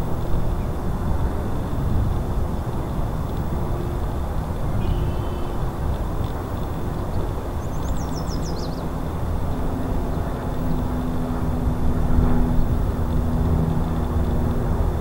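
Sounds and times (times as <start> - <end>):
steady engine drone: 0.0 - 15.0
bird chirping: 7.6 - 8.8.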